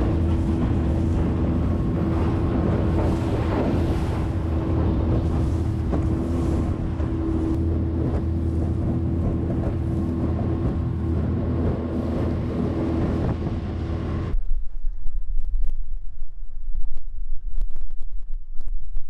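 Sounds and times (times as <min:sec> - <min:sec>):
small boat motor running: 0:00.0 - 0:14.4
wind buffeting microphone: 0:00.0 - 0:19.0.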